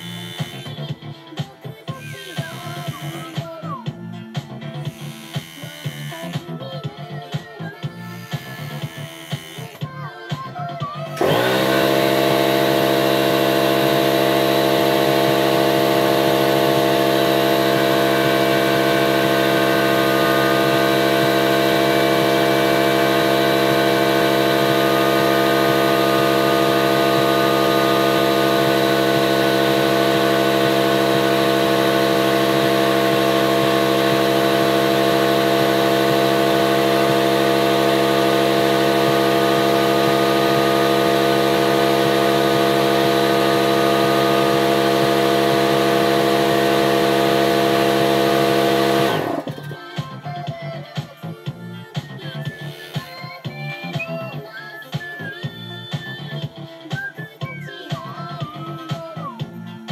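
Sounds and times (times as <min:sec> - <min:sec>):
air compressor motor running: 0:00.0 - 0:06.6, 0:07.2 - 0:10.0, 0:11.0 - 0:54.4.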